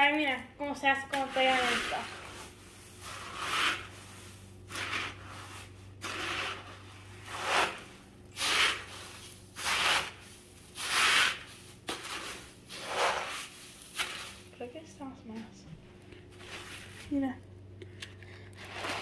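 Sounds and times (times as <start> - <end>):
spoon stirring sticky cereal: 1.0 - 14.6.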